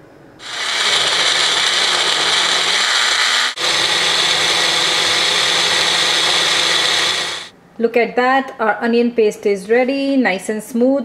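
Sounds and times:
blender motor running: 0:00.4 - 0:07.5.

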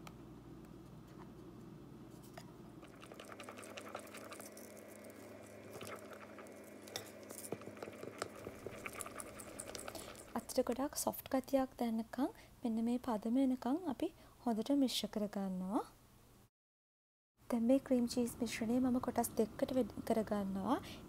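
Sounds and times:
spatula scraping glass bowl: 0:05.4 - 0:10.5.

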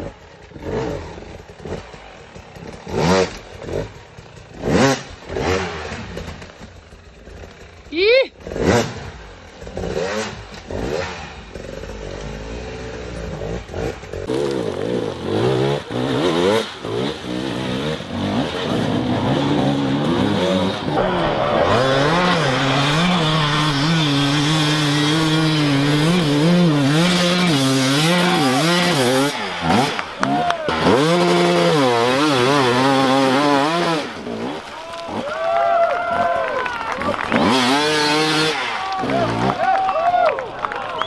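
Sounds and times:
dirt bike engine revving: 0:00.0 - 0:35.4, 0:37.0 - 0:39.7.

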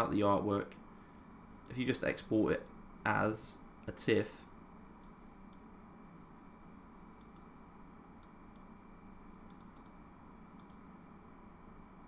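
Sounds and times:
low background hum: 0:00.0 - 0:12.0
computer mouse clicks: 0:05.0 - 0:06.3, 0:07.2 - 0:07.5, 0:08.2 - 0:08.8, 0:09.4 - 0:10.9.

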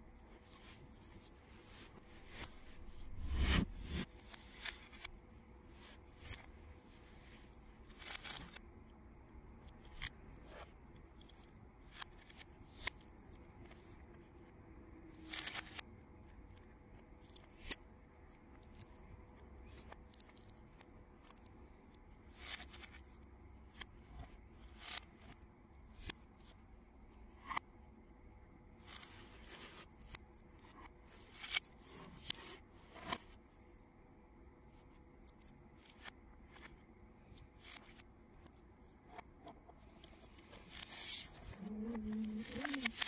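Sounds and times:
plastic pieces clicking together: 0:40.0 - 0:43.0.

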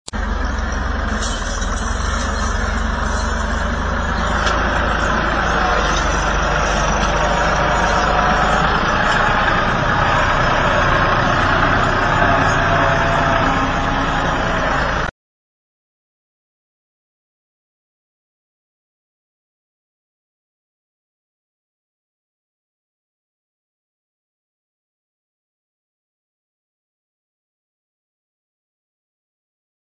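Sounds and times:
tractor engine under heavy load: 0:00.0 - 0:15.1.

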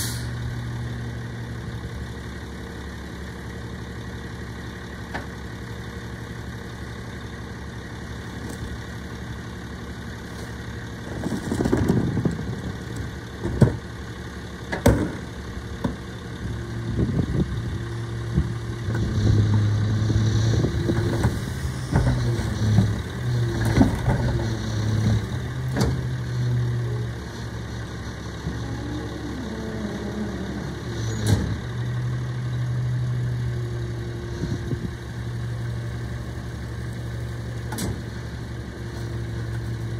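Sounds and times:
garbage truck engine: 0:00.0 - 0:39.9
bangs and clunks of cart: 0:11.1 - 0:13.9, 0:14.7 - 0:16.0, 0:20.8 - 0:26.1.

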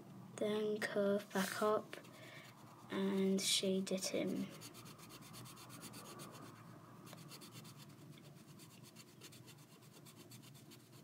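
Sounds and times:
pen scribbling on paper: 0:04.5 - 0:06.5.

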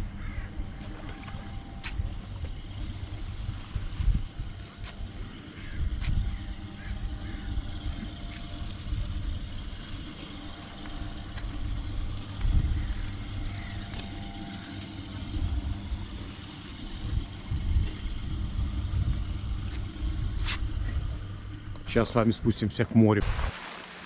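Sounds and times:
low machine hum: 0:00.0 - 0:24.0
wind rumbling on microphone: 0:03.2 - 0:07.9, 0:16.9 - 0:21.4.

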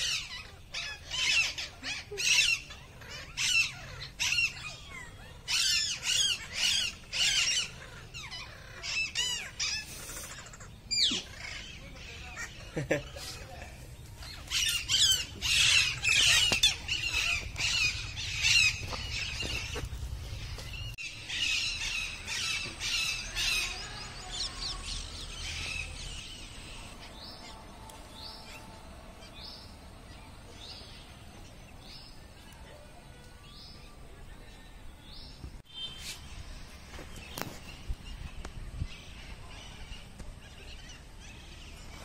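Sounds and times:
parrots squawking: 0:00.0 - 0:12.8, 0:14.2 - 0:20.5.

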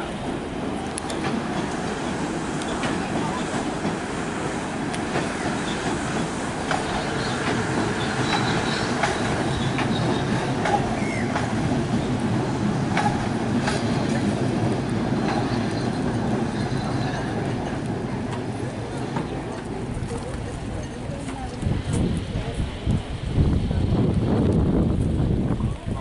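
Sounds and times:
train wheels rumbling on rails: 0:00.0 - 0:26.0
train wheel clicks: 0:04.8 - 0:12.0, 0:12.9 - 0:16.4.

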